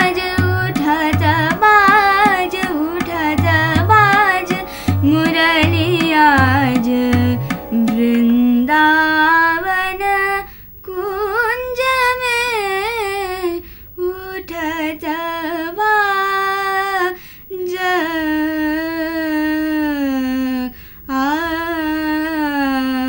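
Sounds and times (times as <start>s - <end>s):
woman singing: 0.0s - 13.3s.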